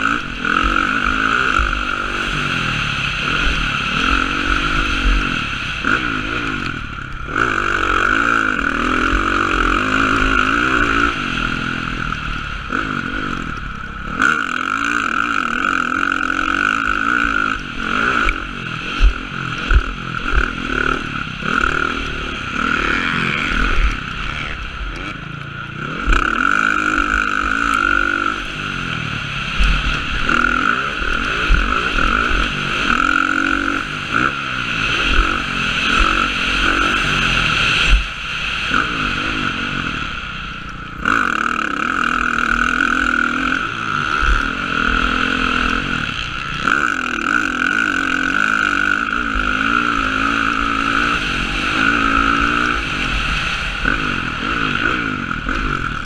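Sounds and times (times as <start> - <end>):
dirt bike engine revving: 0.0 - 56.0
wind rushing over microphone: 28.3 - 56.0.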